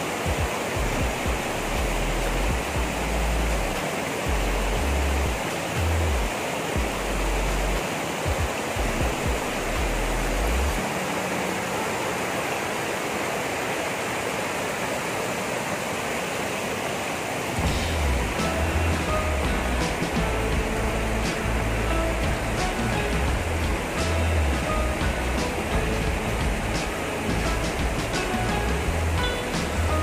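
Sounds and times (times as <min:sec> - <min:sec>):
river rushing over rocks: 0:00.0 - 0:30.0
low rumbling: 0:17.6 - 0:30.0.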